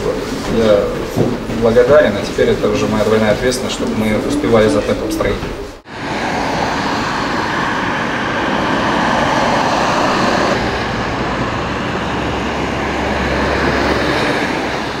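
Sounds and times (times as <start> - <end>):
tyres hissing on wet road: 5.9 - 15.0.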